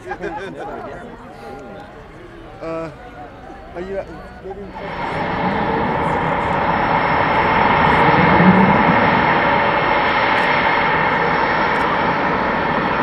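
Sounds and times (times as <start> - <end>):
jet engines with turbine whine: 4.6 - 13.0.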